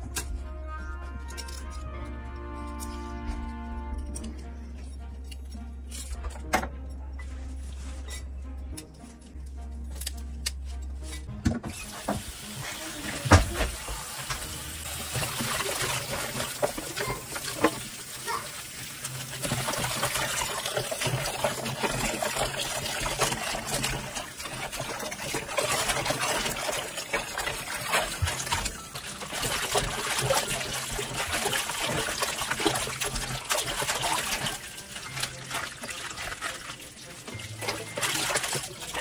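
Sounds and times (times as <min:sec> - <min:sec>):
tap water running into basin: 0:11.8 - 0:39.0.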